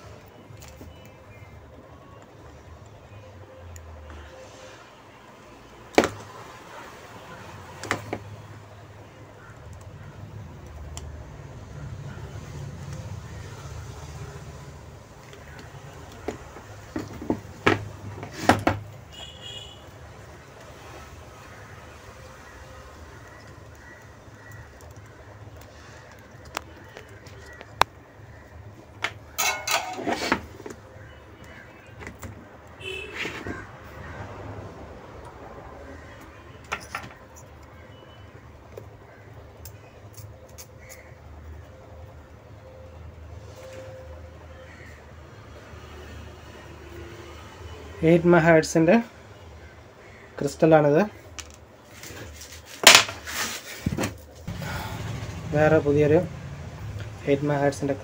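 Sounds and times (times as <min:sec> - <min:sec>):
plastic board scraping and knocking: 0:16.3 - 0:18.8.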